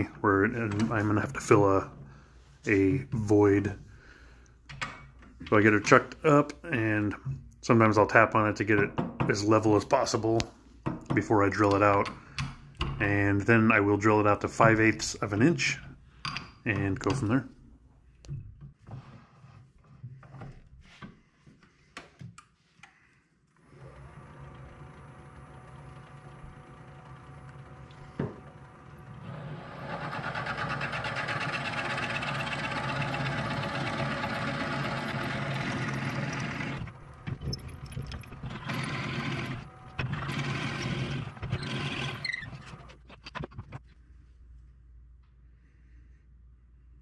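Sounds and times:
lathe motor hum: 23.7s - 42.4s
drill bit boring: 23.8s - 42.8s.

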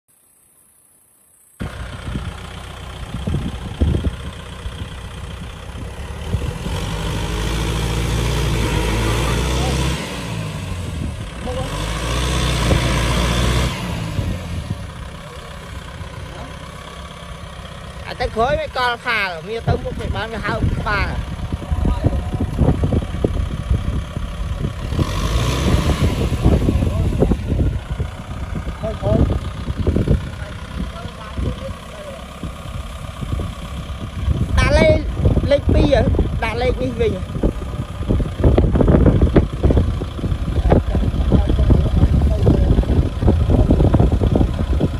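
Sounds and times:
tractor diesel engine under load: 1.6s - 44.9s.

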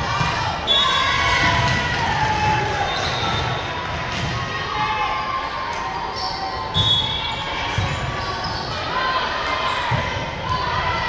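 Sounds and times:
crowd noise: 0.0s - 11.0s
ball bouncing on court: 1.4s - 4.5s, 7.7s - 8.3s
shoe squeaks: 5.4s - 8.8s.

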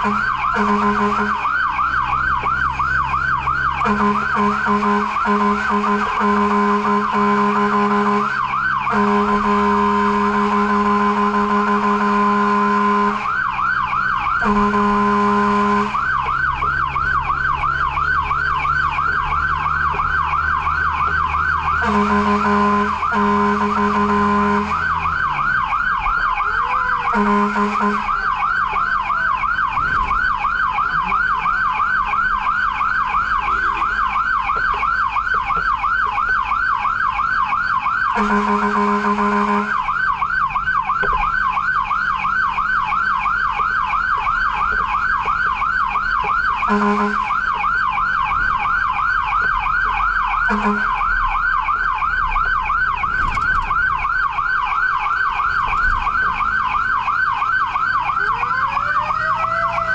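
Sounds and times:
truck horn blasts: 0.0s - 1.5s, 3.8s - 13.4s, 14.4s - 16.2s, 21.7s - 25.0s, 26.5s - 28.3s, 38.1s - 39.9s, 46.6s - 47.5s, 50.4s - 51.1s
engine and road rumble: 0.0s - 59.9s
fire truck siren yelping: 0.0s - 59.9s.

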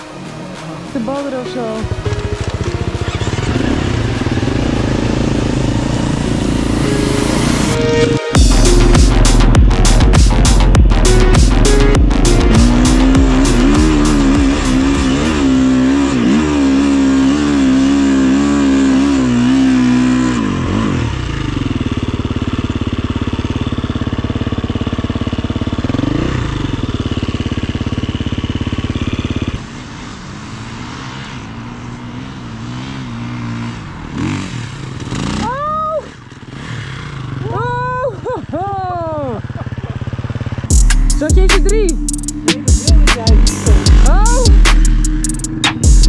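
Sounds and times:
dirt bike engine: 0.0s - 46.0s
other dirt bikes revving: 1.8s - 6.8s, 8.4s - 21.8s, 28.8s - 38.7s.

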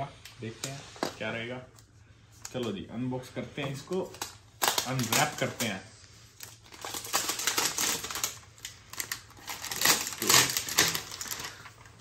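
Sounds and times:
plastic wrap crinkling: 3.7s - 12.0s.

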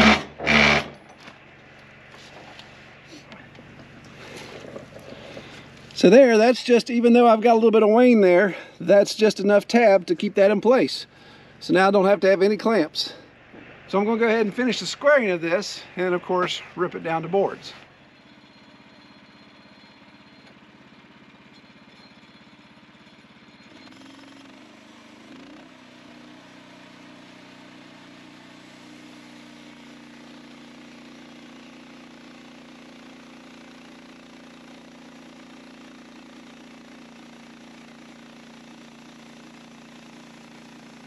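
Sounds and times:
band blade sawing log: 0.0s - 0.9s
gas engine running: 0.0s - 41.0s.

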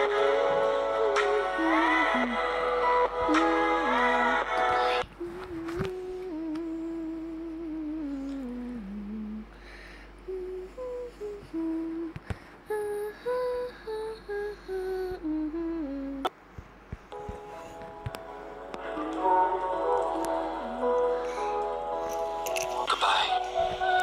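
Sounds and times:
person humming: 3.3s - 9.6s, 10.2s - 16.3s.

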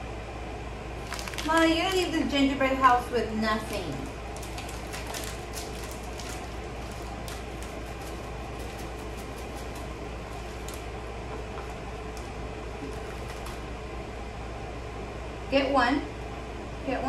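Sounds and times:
low room hum: 0.0s - 17.0s
plastic packet crinkling: 1.0s - 2.3s, 3.5s - 13.7s.

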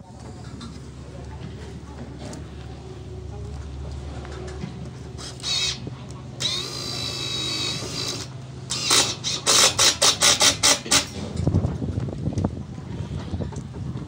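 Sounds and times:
impact driver hammering bursts: 6.4s - 11.2s.

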